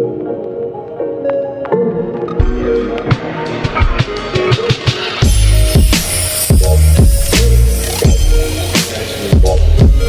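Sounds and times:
gentle instrumental music: 0.0s - 10.0s.

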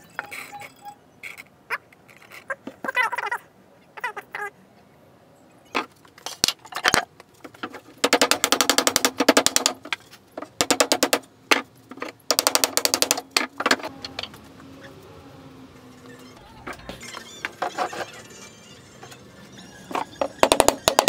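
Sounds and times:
machine rattling: 6.7s - 14.4s, 16.6s - 21.0s
low hum: 13.6s - 17.2s.

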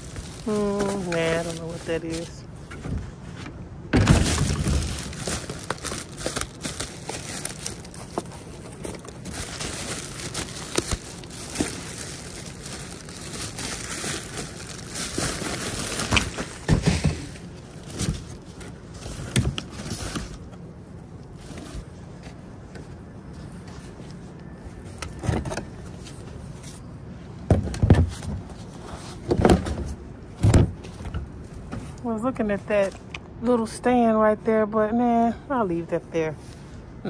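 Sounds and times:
plastic bags rustling: 0.0s - 2.5s, 4.0s - 20.6s.

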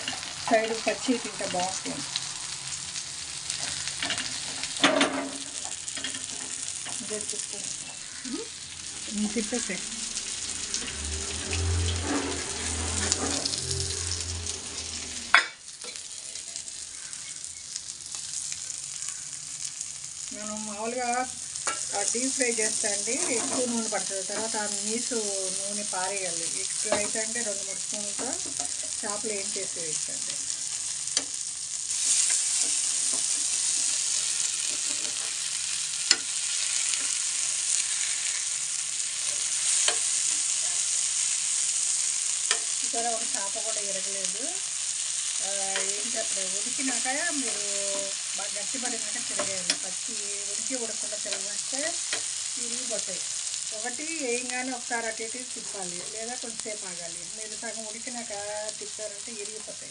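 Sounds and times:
fish sizzling in oil: 0.0s - 59.9s
low hum: 9.3s - 15.4s
metal spatula scraping pan: 10.8s - 16.6s, 23.1s - 24.5s, 31.9s - 38.5s.

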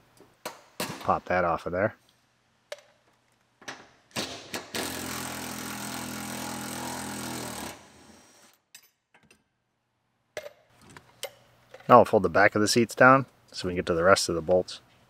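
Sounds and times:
cordless impact driver running: 4.7s - 8.5s.

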